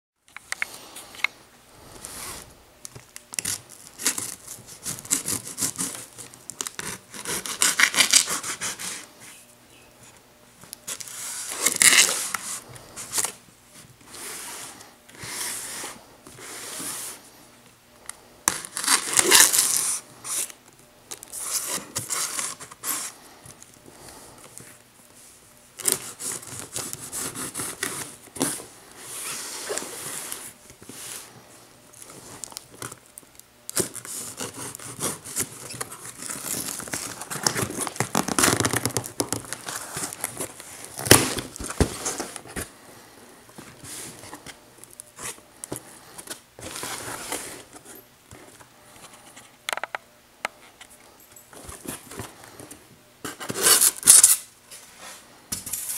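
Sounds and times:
knife slitting packing tape: 0:03.3 - 0:09.0, 0:11.0 - 0:12.4, 0:18.5 - 0:20.5, 0:53.4 - 0:54.5
tape tearing: 0:03.3 - 0:09.0, 0:10.9 - 0:13.4, 0:18.5 - 0:20.6, 0:33.7 - 0:42.5, 0:53.3 - 0:54.5
cardboard scraping: 0:46.6 - 0:47.9.

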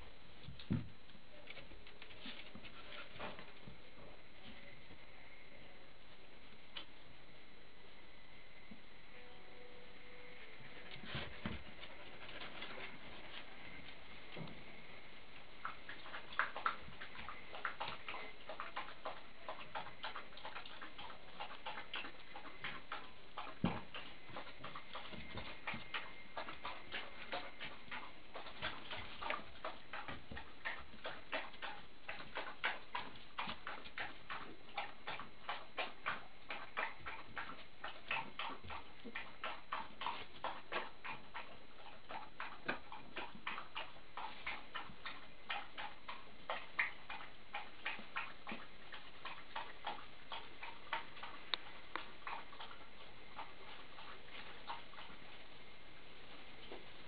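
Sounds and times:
low steady hiss: 0:00.0 - 0:57.0
faint thin high tone: 0:09.1 - 0:10.9.

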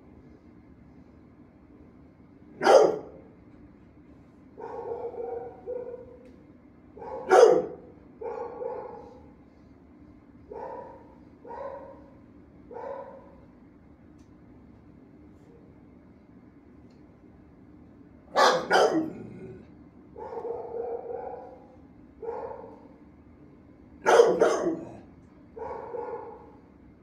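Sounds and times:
dogs barking: 0:02.6 - 0:03.3, 0:04.6 - 0:06.2, 0:07.0 - 0:09.3, 0:10.5 - 0:13.4, 0:18.3 - 0:23.0, 0:24.0 - 0:26.6.

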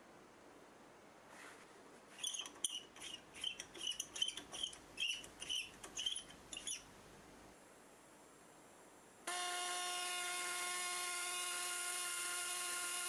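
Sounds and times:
compressed air chirping: 0:02.1 - 0:06.9.

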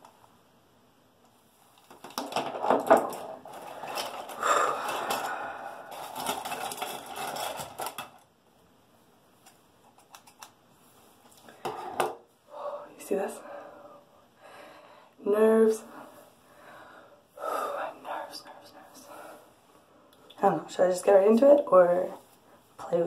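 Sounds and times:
small objects rattling: 0:01.9 - 0:08.3.

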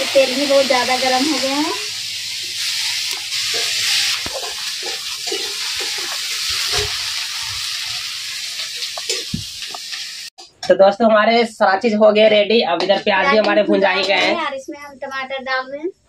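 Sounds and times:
onions sizzling in hot oil: 0:00.0 - 0:10.4
metal ladle scraping pan: 0:02.6 - 0:07.9.

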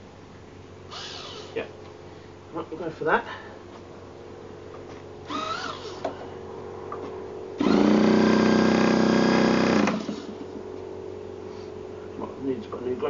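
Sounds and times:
electric starter spinning engine: 0:00.9 - 0:01.6, 0:05.2 - 0:06.1, 0:07.6 - 0:10.7.

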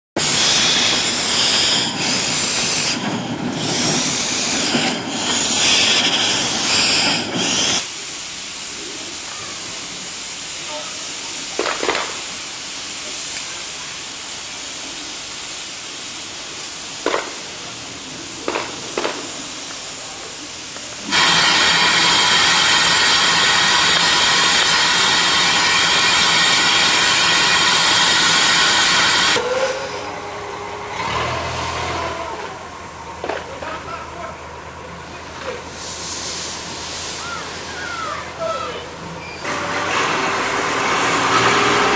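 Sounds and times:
steam locomotive hissing: 0:00.2 - 0:41.9.

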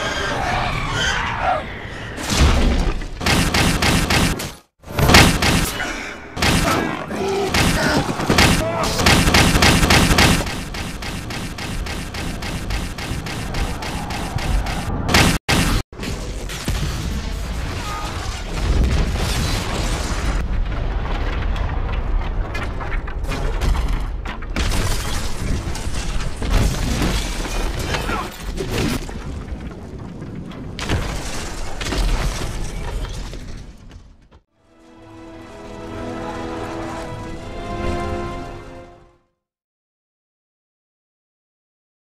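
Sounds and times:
booms and crashes: 0:02.2 - 0:05.8, 0:07.5 - 0:23.9
music: 0:34.6 - 0:39.4.

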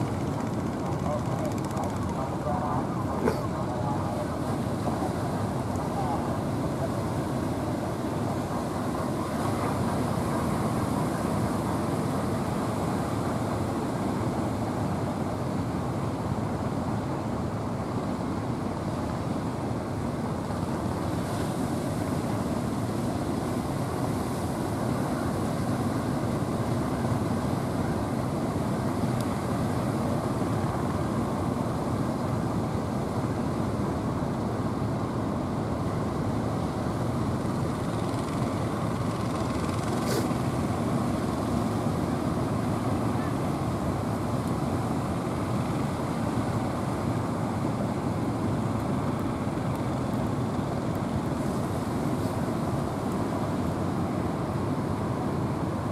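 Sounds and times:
boat engines running: 0:00.0 - 0:14.7, 0:35.3 - 0:47.3.

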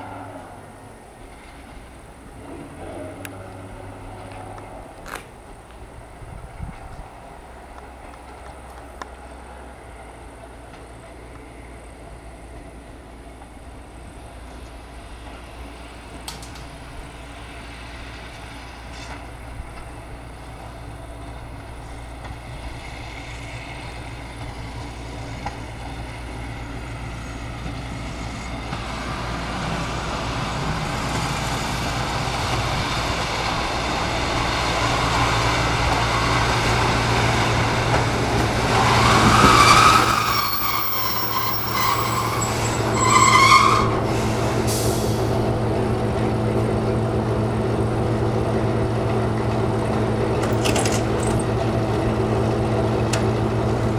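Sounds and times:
diesel railcar engine hum: 0:00.0 - 0:53.9
wheels and brakes squealing: 0:38.6 - 0:45.2.

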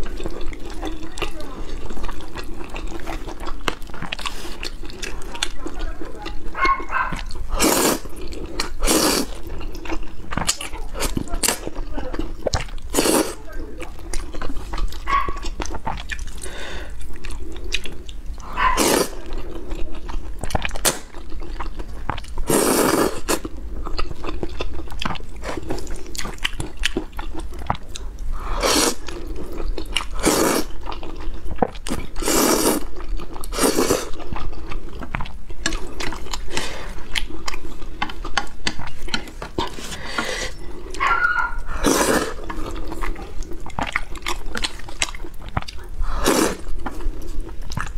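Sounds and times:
chewing: 0:00.0 - 0:47.9
slurping noodles: 0:07.2 - 0:11.6, 0:12.4 - 0:13.4, 0:14.2 - 0:21.1, 0:22.4 - 0:24.0, 0:28.4 - 0:34.9, 0:39.6 - 0:44.9, 0:46.0 - 0:47.6.

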